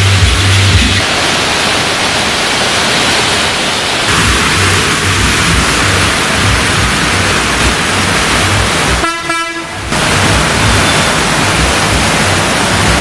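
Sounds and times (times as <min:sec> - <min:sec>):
heavy rain hissing: 0:00.0 - 0:13.0
vehicle horn honking: 0:09.0 - 0:09.9.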